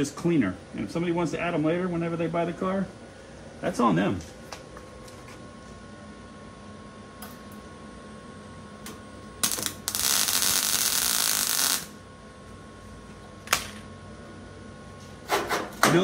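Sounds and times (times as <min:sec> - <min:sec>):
welding arc buzzing: 0:07.2 - 0:12.8.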